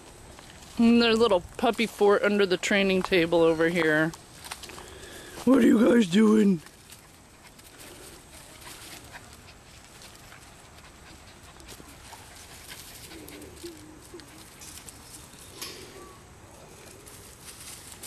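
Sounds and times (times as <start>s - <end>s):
rustling of dry leaves: 0.0s - 18.0s
puppies making low vocal sounds: 6.9s - 17.4s.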